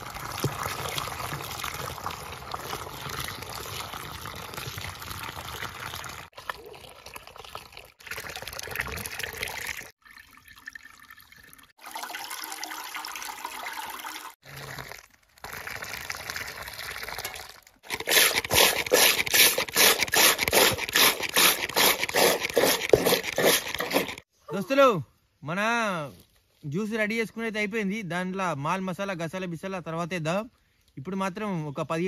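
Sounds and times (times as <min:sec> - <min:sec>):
juice pouring into a can: 0:00.0 - 0:24.2
liquid splashing and gurgling: 0:00.0 - 0:24.2.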